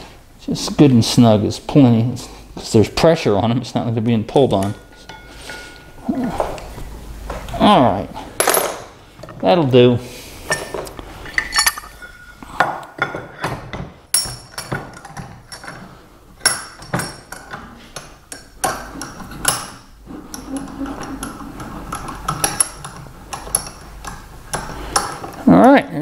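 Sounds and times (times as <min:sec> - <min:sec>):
vise sliding bar clinking: 0:10.5 - 0:12.4.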